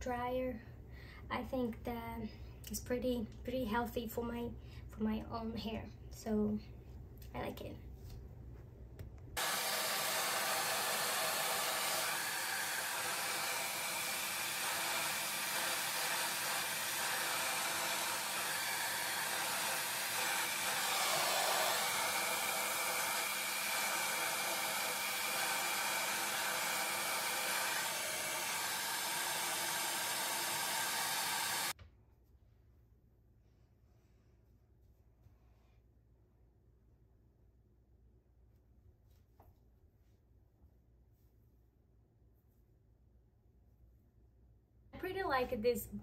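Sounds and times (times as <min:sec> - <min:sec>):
hair dryer blowing: 0:09.4 - 0:31.8.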